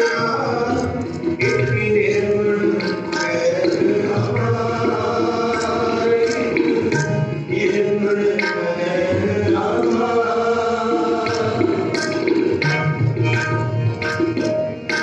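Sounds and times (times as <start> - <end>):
tabla strokes: 0.0 - 15.0
voices chanting together: 3.4 - 7.0, 7.6 - 12.0.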